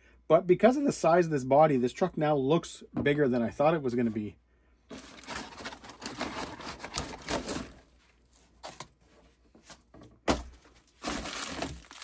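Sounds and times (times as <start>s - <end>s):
packaging rustling and scraping: 4.9s - 12.0s.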